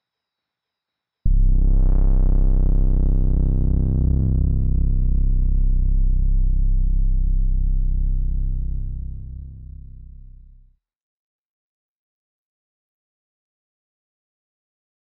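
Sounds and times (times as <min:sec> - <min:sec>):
deep pulsing synthesizer drone: 0:01.3 - 0:10.6.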